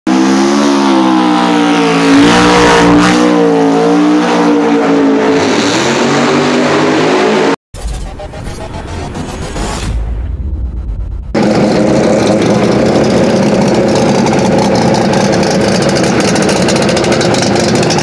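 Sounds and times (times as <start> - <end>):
drag car engine at high revs: 0.1 - 7.6, 11.4 - 18.0
intro music: 7.8 - 12.2.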